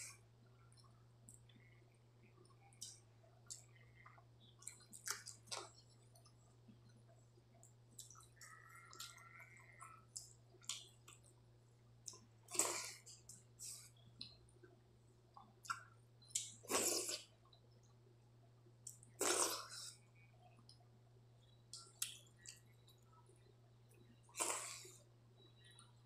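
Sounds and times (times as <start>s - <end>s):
faint low hum: 0.0s - 26.0s
wet chewing: 2.5s - 7.0s, 7.6s - 11.3s
wet slurping: 16.7s - 17.3s, 19.2s - 19.9s.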